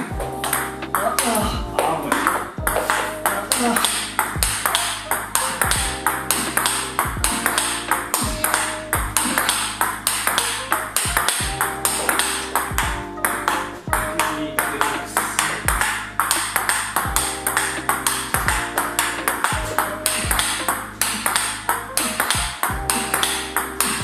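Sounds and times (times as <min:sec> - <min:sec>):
background music with beat: 0:00.0 - 0:24.0
ping pong ball clicks: 0:07.4 - 0:12.7, 0:14.8 - 0:18.2, 0:19.0 - 0:23.4.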